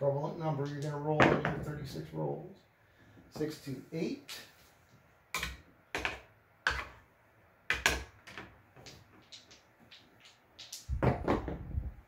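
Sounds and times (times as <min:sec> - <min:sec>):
dice and chips clacking: 0:07.7 - 0:11.5.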